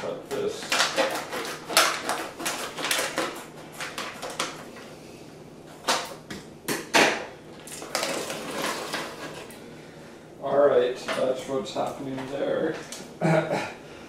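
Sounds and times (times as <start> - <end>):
plastic package crinkling: 7.6 - 9.5.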